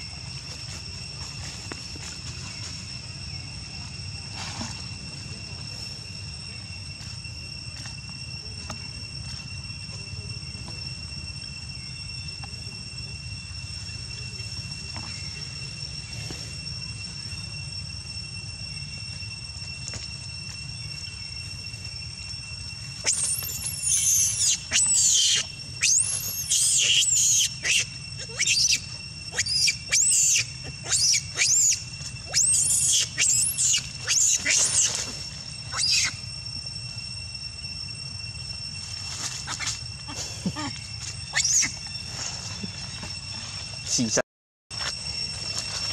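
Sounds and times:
high insect trill: 0:00.0 - 0:45.9
monkey screaming: 0:23.0 - 0:36.2, 0:39.4 - 0:41.8.

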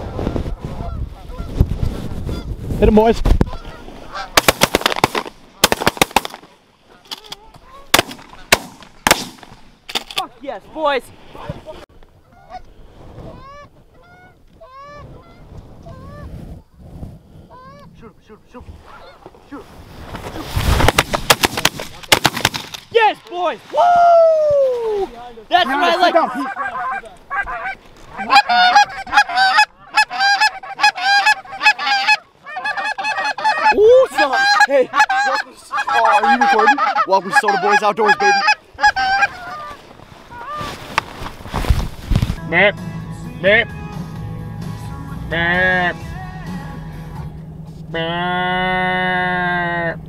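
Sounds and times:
geese honking: 0:00.7 - 0:01.6, 0:03.4 - 0:04.5, 0:05.6 - 0:08.6, 0:12.2 - 0:12.7, 0:13.3 - 0:16.3, 0:18.8 - 0:19.3, 0:25.5 - 0:40.8
low rumble: 0:42.4 - 0:50.0
goose low rising call: 0:45.3 - 0:50.0.

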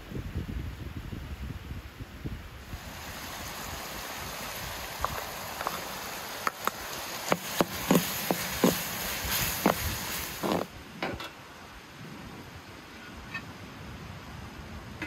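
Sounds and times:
meat simmering with steady hiss: 0:02.6 - 0:11.0.

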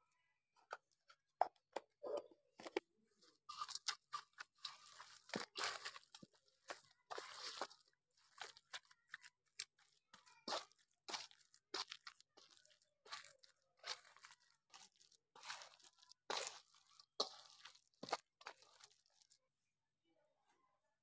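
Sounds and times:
crunching of crisp food: 0:03.2 - 0:19.4.

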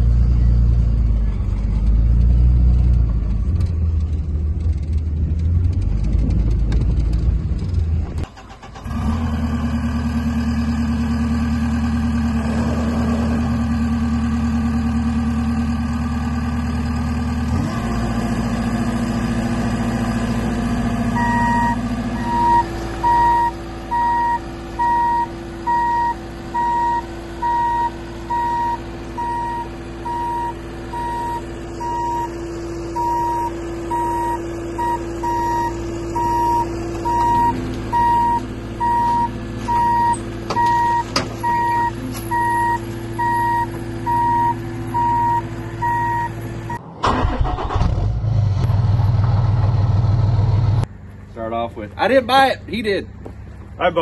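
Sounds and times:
diesel engine running: 0:00.0 - 0:54.0
reversing alarm beeping: 0:21.2 - 0:32.3, 0:33.0 - 0:46.8.

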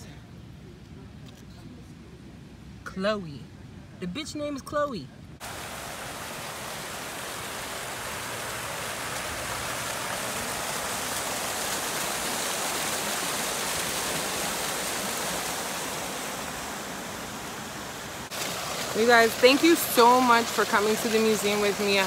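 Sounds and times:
fountain water splashing: 0:05.4 - 0:22.0.

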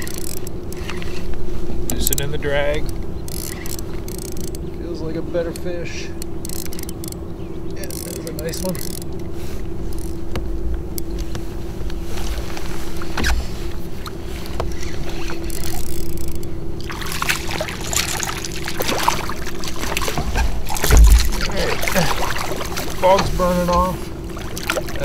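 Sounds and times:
fish splashing at the surface: 0:16.8 - 0:23.2, 0:24.1 - 0:25.0.

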